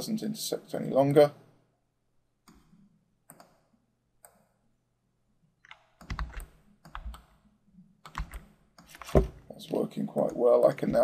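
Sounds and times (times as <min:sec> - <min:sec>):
keyboard typing and mouse clicks: 0:02.4 - 0:04.6, 0:05.6 - 0:09.5, 0:10.1 - 0:11.0.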